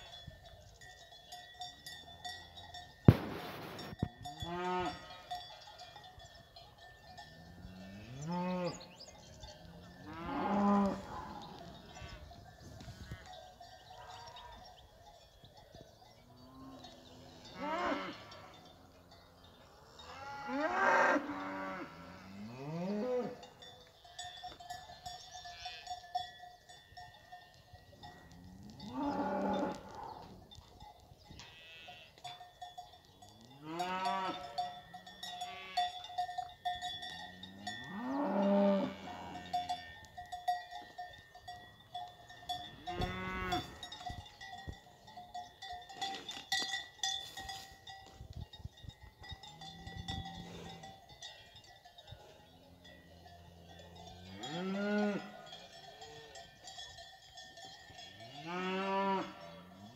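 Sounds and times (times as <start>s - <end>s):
faint cowbell clanking: 0.0s - 59.9s
cows mooing: 2.2s - 5.8s, 7.3s - 12.3s, 16.4s - 18.7s, 19.7s - 23.6s, 28.2s - 30.4s, 31.4s - 32.3s, 33.5s - 36.1s, 37.2s - 40.0s, 42.3s - 44.0s, 52.8s - 56.6s, 57.9s - 59.9s.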